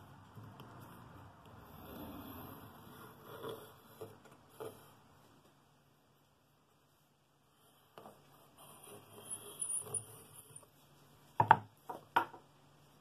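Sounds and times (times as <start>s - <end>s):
pencil scratching on wood: 1.8s - 5.0s, 7.6s - 10.7s.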